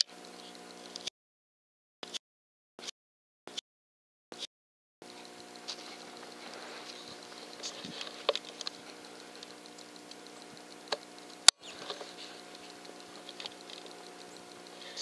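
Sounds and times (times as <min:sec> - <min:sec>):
faint ticks and rustles: 0:05.0 - 0:15.0.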